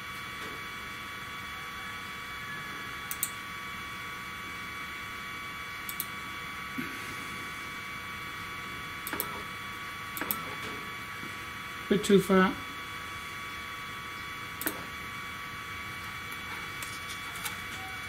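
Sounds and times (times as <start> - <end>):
short motor clicks: 3.1 - 3.4, 5.9 - 6.1, 9.0 - 9.4.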